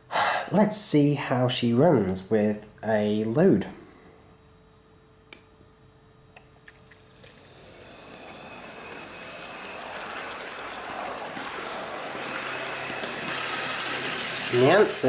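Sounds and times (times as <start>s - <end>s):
model train motor whir: 6.7s - 15.0s
wheels rumbling on rails: 7.1s - 15.0s.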